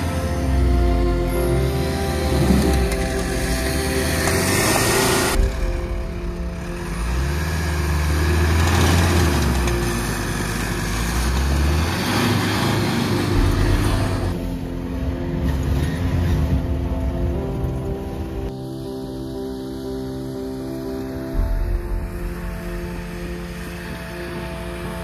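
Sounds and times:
pickup truck engine running: 0:00.0 - 0:18.5
background music: 0:00.0 - 0:25.0.

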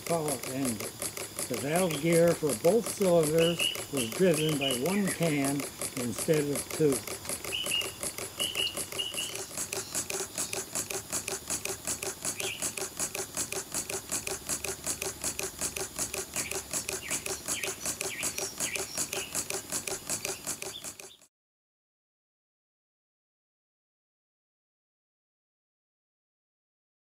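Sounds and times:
model air engine puffing and clicking: 0:00.0 - 0:21.3.

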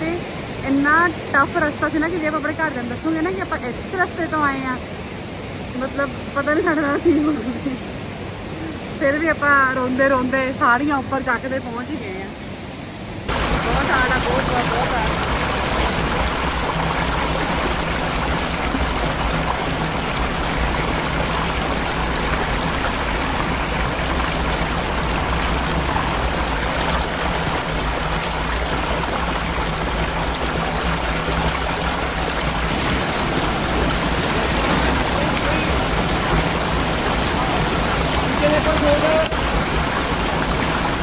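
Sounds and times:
waterfall pouring into pool: 0:13.3 - 0:41.0.

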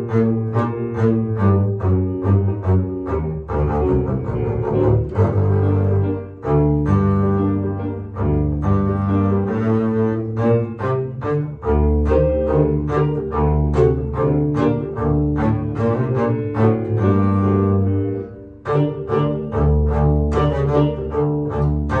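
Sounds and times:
bowed double bass: 0:00.0 - 0:22.0.

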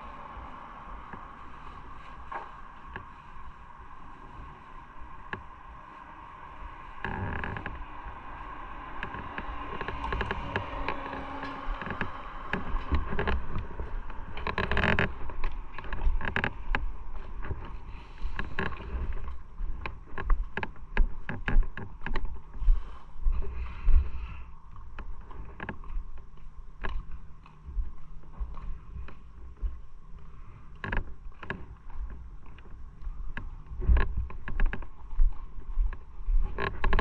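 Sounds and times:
loud rush of noise: 0:00.0 - 0:15.4
motorcycle engine drone: 0:00.0 - 0:22.2
wind buffeting microphone: 0:00.0 - 0:24.0.

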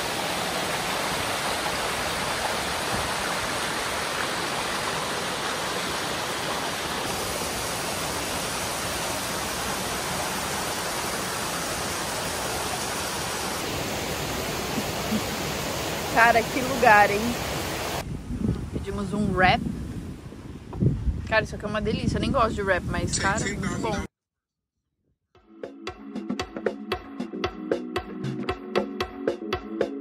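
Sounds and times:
waterfall rushing over rocks: 0:00.0 - 0:18.0.

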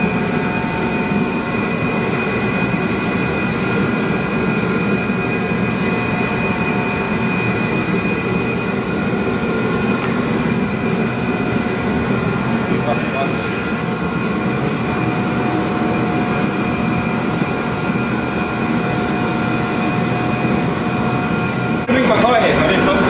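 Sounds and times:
heat gun blowing and whining: 0:00.0 - 0:14.4
space heater running: 0:00.0 - 0:23.0.

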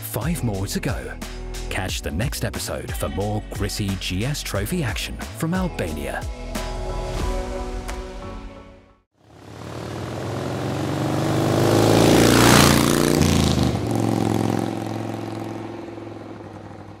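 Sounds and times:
motorcycle engine passing by: 0:09.2 - 0:17.0.

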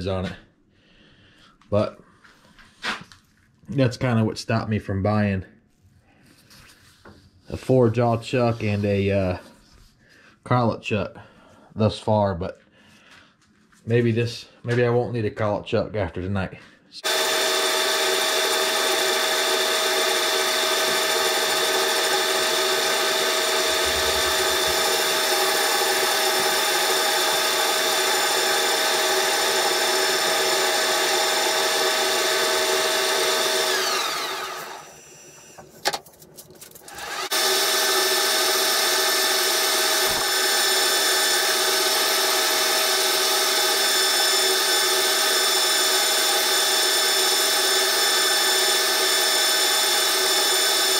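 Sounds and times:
lathe winding down: 0:17.0 - 0:35.6, 0:36.8 - 0:50.9
metal lathe whining: 0:17.0 - 0:35.6, 0:36.8 - 0:50.9.

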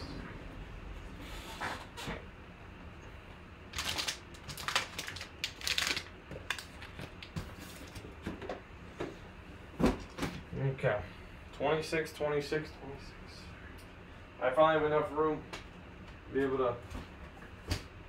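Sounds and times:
foil pack crinkling: 0:03.7 - 0:08.0.

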